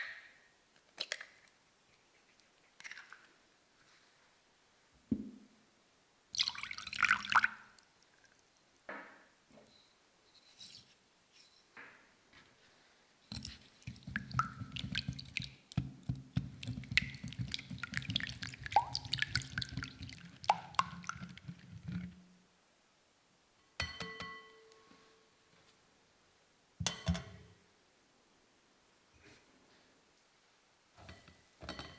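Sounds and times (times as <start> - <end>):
whisk beating eggs in glass bowl: 13.4 - 22.1
glass clinking: 23.8 - 24.7.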